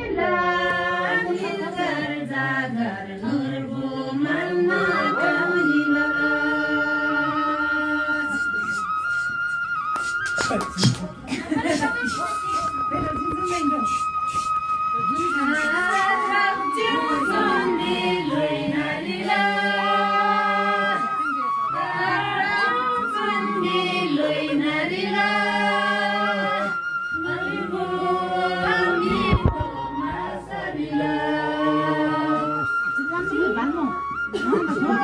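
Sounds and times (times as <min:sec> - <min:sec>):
women singing unaccompanied: 0:00.0 - 0:08.9, 0:15.0 - 0:33.5.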